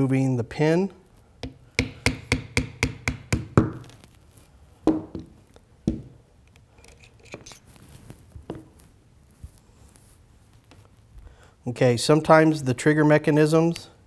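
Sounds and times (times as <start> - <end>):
hammer tapping a metal punch: 1.4 - 3.8.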